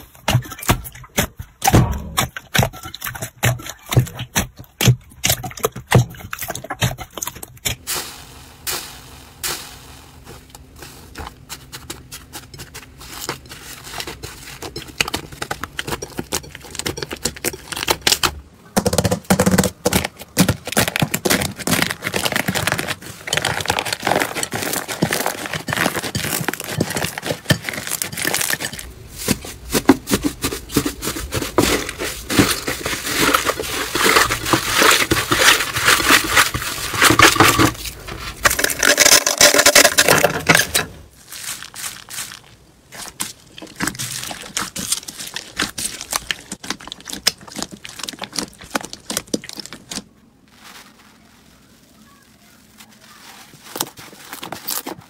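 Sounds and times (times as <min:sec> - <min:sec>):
slime crackling and popping: 0:41.3 - 0:51.6.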